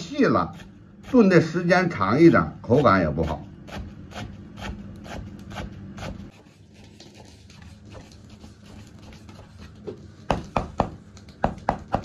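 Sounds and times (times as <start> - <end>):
knife chopping on wooden board: 10.3 - 12.0.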